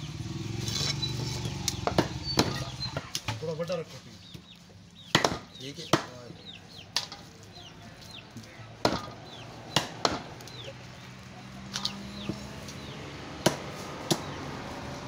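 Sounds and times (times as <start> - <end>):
bird chirping: 0.0 - 15.0
cleaver chopping on wooden block: 1.7 - 2.7, 5.1 - 6.3, 8.8 - 10.4, 13.4 - 14.4.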